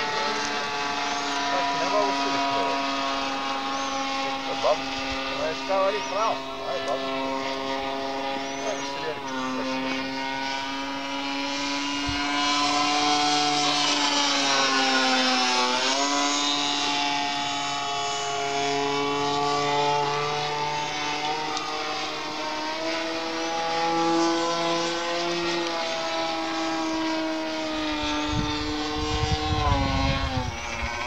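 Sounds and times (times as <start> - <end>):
model airplane motor and propeller: 0.0 - 31.0.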